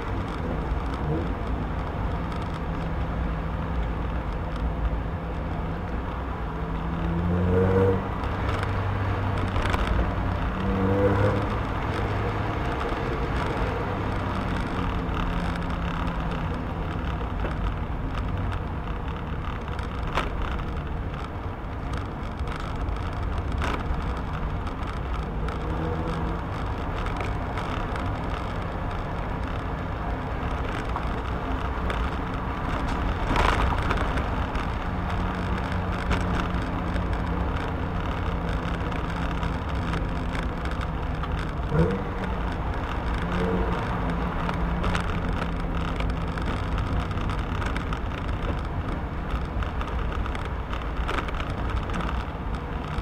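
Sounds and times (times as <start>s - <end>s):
car engine droning: 0.0s - 53.0s.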